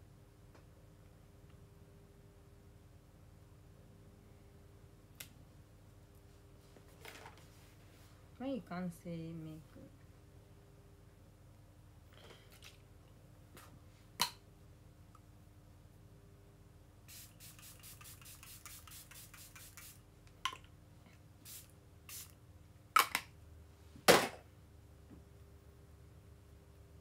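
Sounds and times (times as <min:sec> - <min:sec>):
pump spray bottle spritzing: 0:17.1 - 0:20.0, 0:21.5 - 0:22.3.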